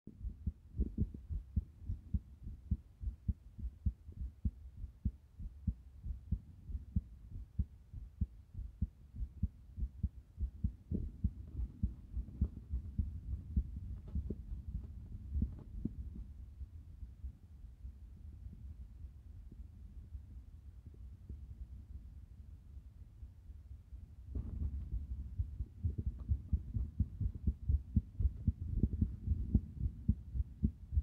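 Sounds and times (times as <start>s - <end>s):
irregular heartbeat thumps: 0.1s - 17.4s, 24.3s - 31.0s.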